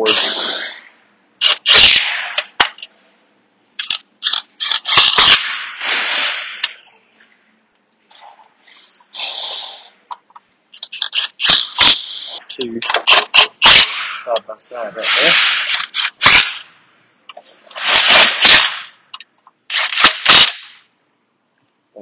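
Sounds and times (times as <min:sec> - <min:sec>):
power gun bursts: 0:01.4 - 0:02.4, 0:04.6 - 0:06.6, 0:13.1 - 0:14.4, 0:15.0 - 0:16.6, 0:17.7 - 0:19.0, 0:19.7 - 0:20.8.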